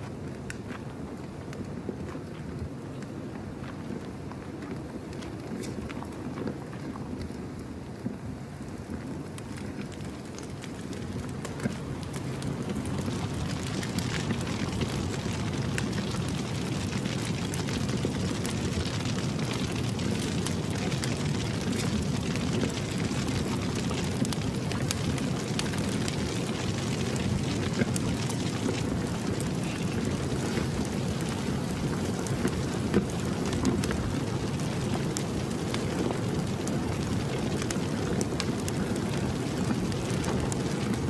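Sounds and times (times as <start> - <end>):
bonfire flames rushing: 0.0 - 41.0
fire crackling and popping: 0.0 - 41.0.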